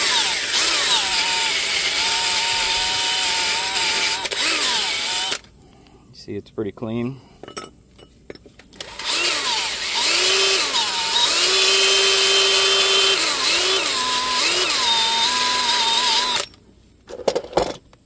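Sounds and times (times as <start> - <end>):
drill spinning wire brush on metal: 0.0 - 5.4, 8.8 - 16.6.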